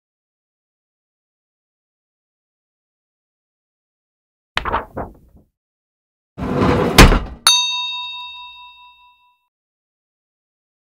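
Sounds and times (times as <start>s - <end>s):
bright bell ding: 7.5s - 9.4s.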